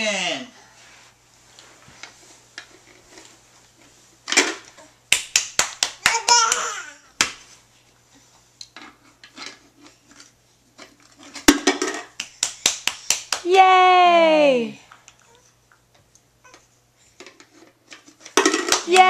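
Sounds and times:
hands clapping: 0:05.1 - 0:07.4, 0:12.2 - 0:13.6, 0:18.7 - 0:19.0
baby laughing: 0:06.0 - 0:07.1.

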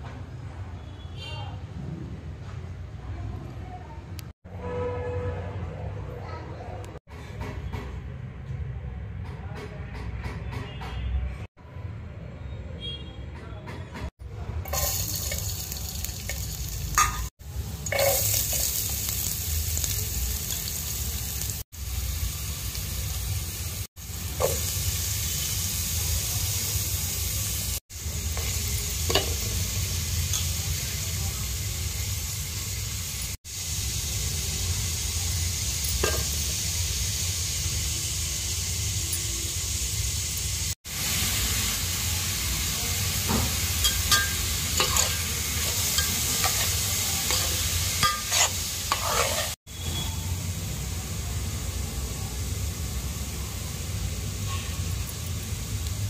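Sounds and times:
food sizzling in hot oil: 0:14.6 - 0:56.0
spatula scraping metal pot: 0:47.3 - 0:49.6.

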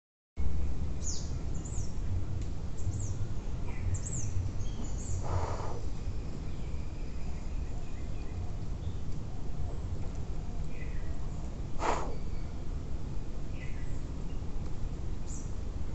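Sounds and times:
low forest rumble: 0:00.4 - 0:15.9.

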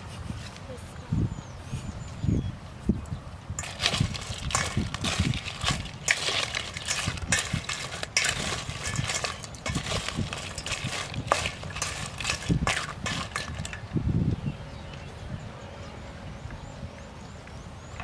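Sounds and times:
metal spoon scraping a steel bowl: 0:03.6 - 0:13.9
crab shells clattering: 0:03.6 - 0:14.0.

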